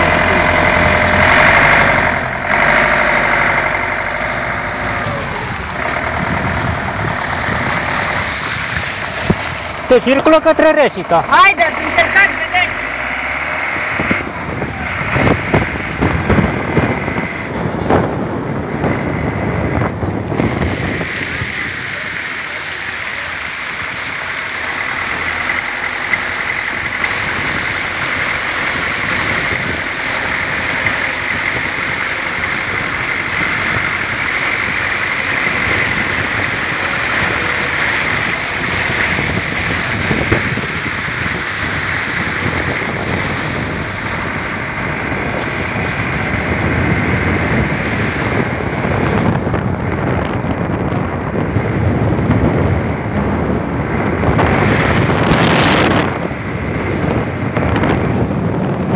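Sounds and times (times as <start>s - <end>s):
tyres spraying through flood water: 0.0s - 58.9s
vehicle engine running: 0.0s - 58.9s
wind rumble on microphone: 0.0s - 58.9s.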